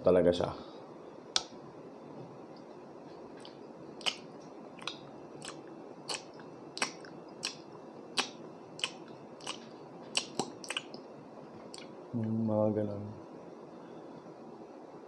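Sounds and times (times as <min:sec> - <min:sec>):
wet chewing mouth smacks: 0:03.4 - 0:11.1, 0:11.7 - 0:12.0.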